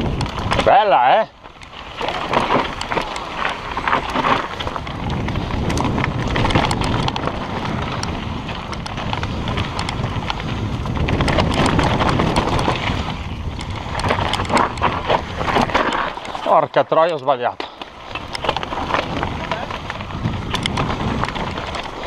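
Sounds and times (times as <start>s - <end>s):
bike clattering over bumps: 0.0s - 22.0s
bike tyres crunching over rock: 0.0s - 22.0s
wind rumbling on microphone: 0.0s - 22.0s.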